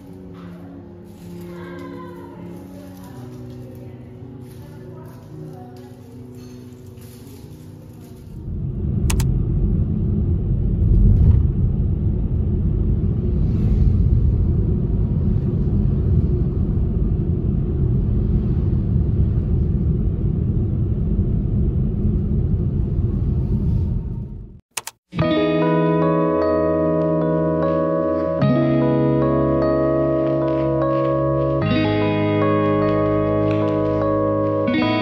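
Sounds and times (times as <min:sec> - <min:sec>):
car rumble from inside cabin: 0:08.5 - 0:24.6.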